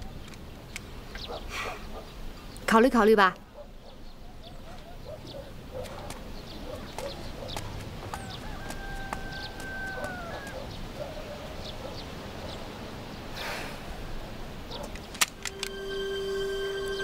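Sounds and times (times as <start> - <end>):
small birds chirping: 0.0 - 13.3
sustained music note: 15.4 - 17.0.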